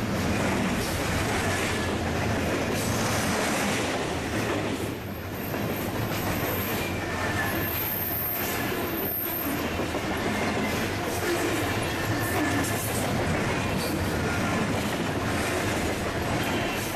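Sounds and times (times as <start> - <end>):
train wheels rumbling on rails: 0.0 - 16.9
wheels squealing on rail: 5.2 - 14.6.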